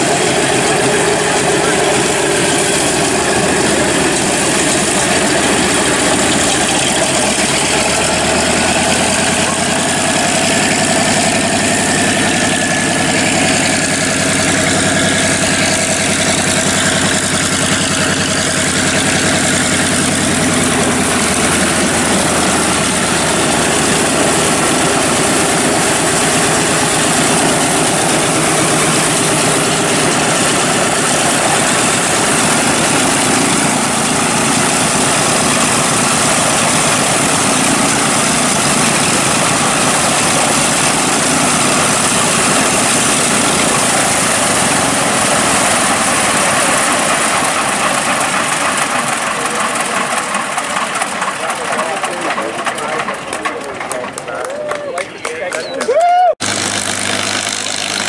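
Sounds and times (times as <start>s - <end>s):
radial aircraft engine idling: 0.0s - 58.0s.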